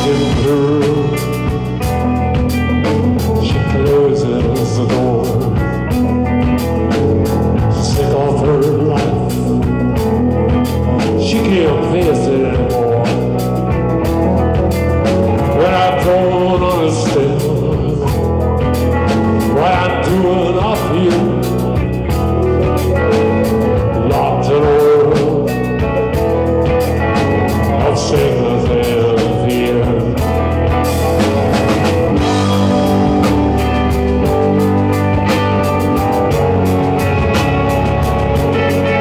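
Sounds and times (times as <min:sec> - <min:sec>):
bass guitar: 0:00.0 - 0:39.0
drum kit: 0:00.0 - 0:39.0
electric guitars: 0:00.0 - 0:39.0.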